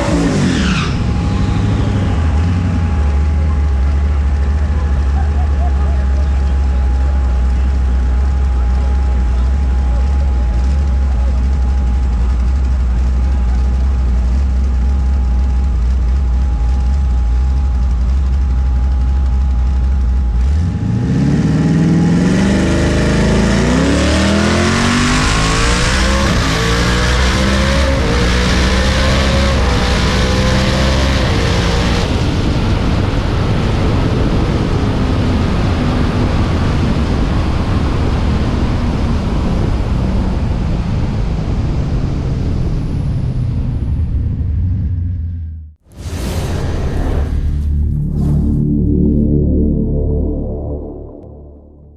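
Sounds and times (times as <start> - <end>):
car engine accelerating through gears: 0.0 - 39.9.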